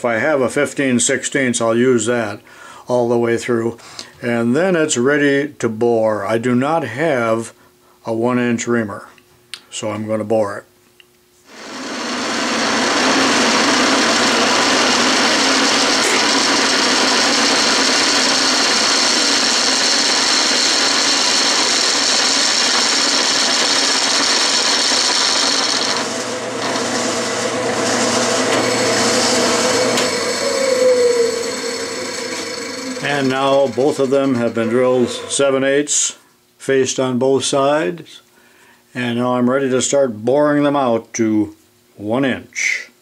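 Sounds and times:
drill cutting metal: 11.5s - 35.6s
lathe spindle humming: 11.5s - 35.6s.

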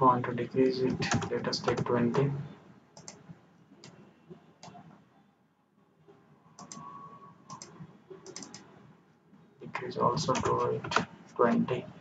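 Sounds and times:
computer mouse clicking: 3.0s - 3.2s, 6.6s - 6.9s, 7.5s - 8.7s.

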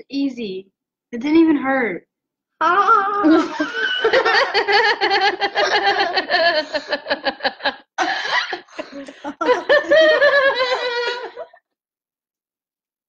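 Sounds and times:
people laughing: 3.1s - 11.6s.

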